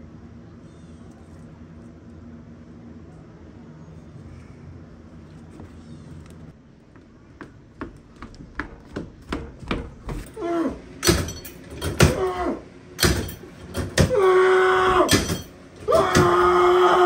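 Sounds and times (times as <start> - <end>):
footsteps on wooden boards: 6.9 - 10.4
muffled vocal cries: 12.0 - 12.8, 14.0 - 15.2, 15.8 - 17.0.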